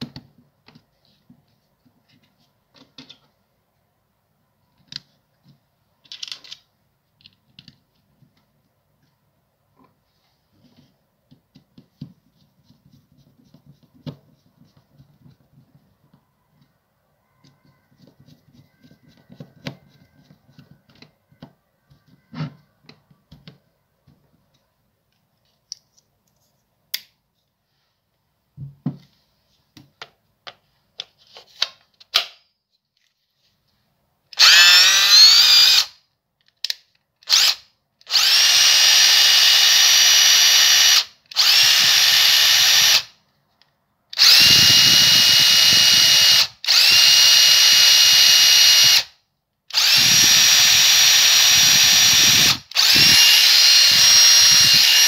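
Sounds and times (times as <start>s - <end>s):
impact driver motor whining: 34.4s - 35.9s, 37.3s - 43.1s, 44.2s - 49.1s, 49.7s - 55.0s
screws clicking: 34.4s - 35.9s, 44.2s - 49.1s, 49.7s - 55.0s
screwdriver rattling: 49.8s - 55.0s.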